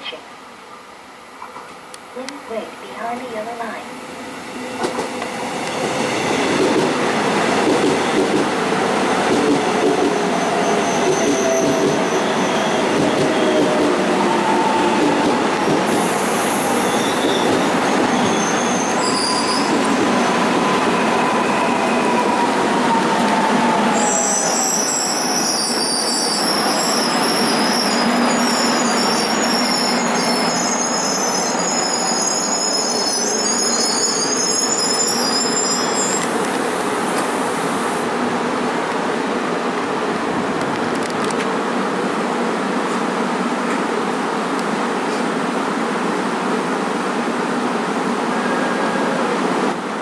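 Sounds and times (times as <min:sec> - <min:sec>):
train rolling and slowing: 0:00.6 - 0:50.0
wheel and brake squeal: 0:16.6 - 0:20.0, 0:24.0 - 0:36.3.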